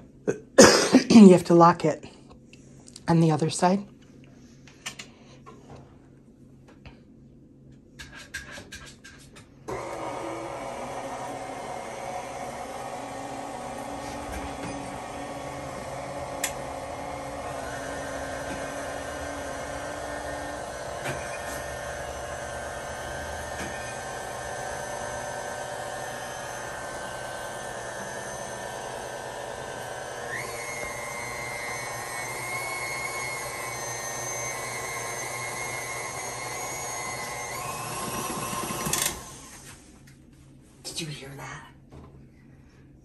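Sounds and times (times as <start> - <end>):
stand mixer running: 9.7 - 39.6.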